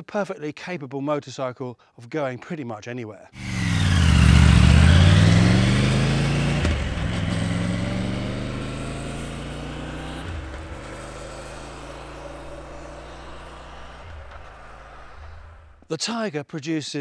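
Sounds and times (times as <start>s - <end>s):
motorcycle engine accelerating: 3.4s - 15.8s.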